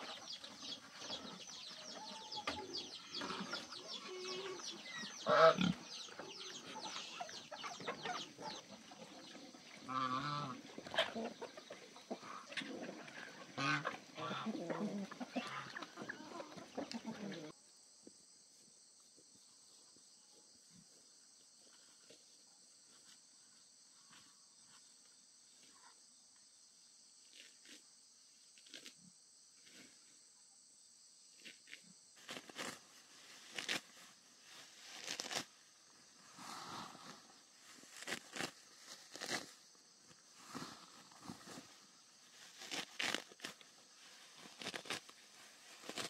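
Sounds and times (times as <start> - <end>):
grass being pulled and cut: 2.5 - 16.0, 27.2 - 27.8, 28.5 - 29.0, 31.4 - 46.0.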